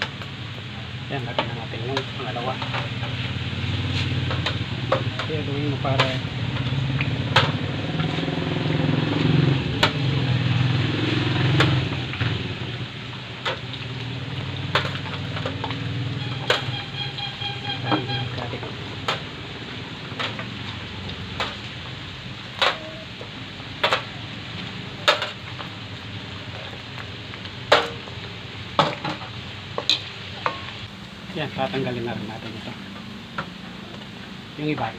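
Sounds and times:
fat sizzling in hot oil: 0.0s - 34.9s
spatula clacks and pops: 21.1s - 21.6s.

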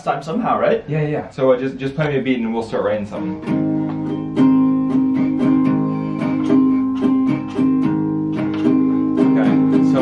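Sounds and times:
acoustic guitar strumming: 3.1s - 10.0s.

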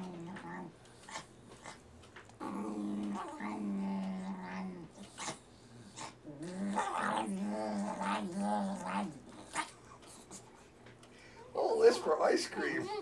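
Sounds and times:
dog growling low: 0.0s - 1.8s, 2.4s - 9.7s.

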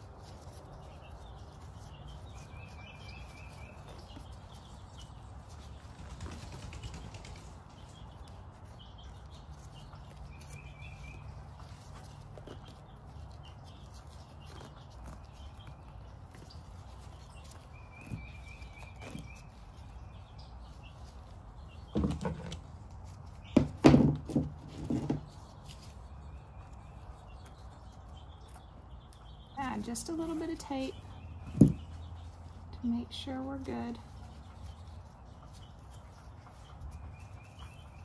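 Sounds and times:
low steady background noise: 0.0s - 38.0s
dull thumps and knocks on a table: 21.9s - 22.6s, 23.6s - 25.3s.

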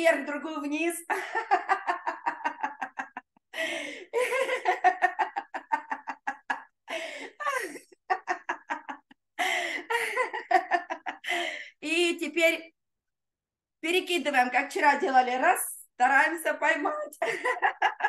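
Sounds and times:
woman laughing rhythmically: 1.1s - 11.8s, 17.2s - 18.0s.

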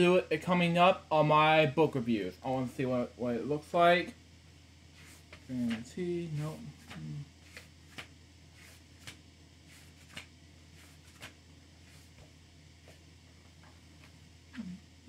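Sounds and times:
low steady hum: 0.0s - 15.0s
book pages turning: 5.0s - 5.8s, 6.4s - 13.0s.

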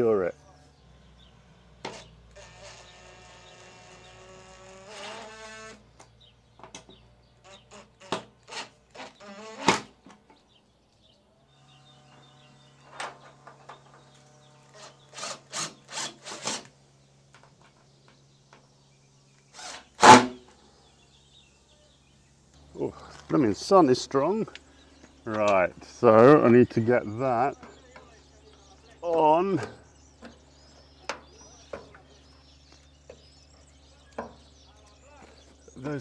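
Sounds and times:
cordless drill motor whining: 1.8s - 5.9s
faint steady hum: 10.1s - 36.0s.

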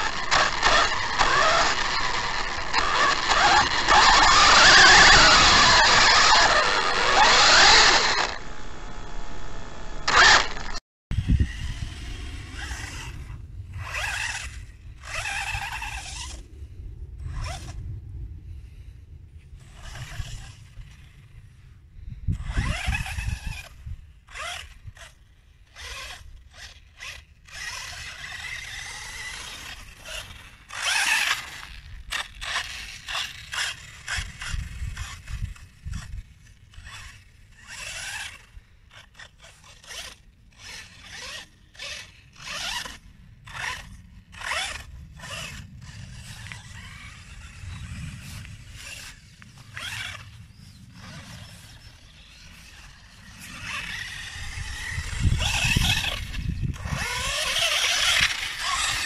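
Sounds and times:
rc buggy motor and tyres scraping: 0.0s - 59.0s.

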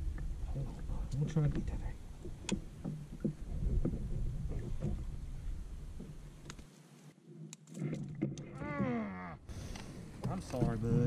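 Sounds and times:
low rumble: 0.0s - 6.4s.

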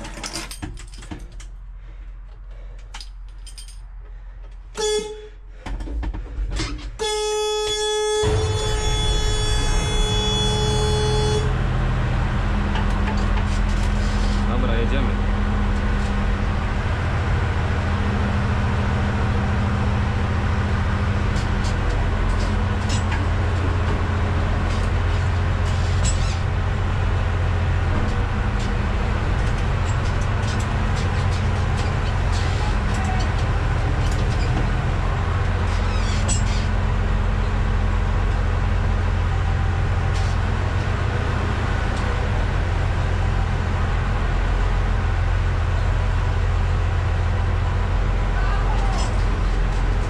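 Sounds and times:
machine rattles and clicks: 0.0s - 1.6s
diesel engine running: 0.0s - 50.0s.

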